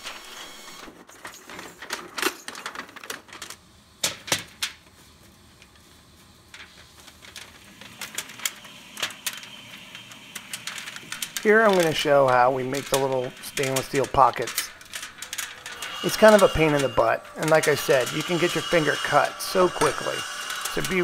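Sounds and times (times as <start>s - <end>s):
metal foil clicking and snapping: 6.5s - 18.6s.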